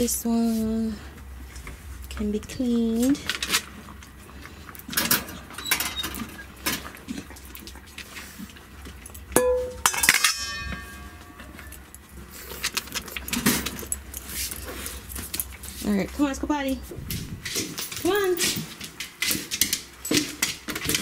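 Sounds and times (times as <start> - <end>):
metal bowls clanking: 9.3 - 12.0
sharp ringing metallic knock: 9.4 - 11.4.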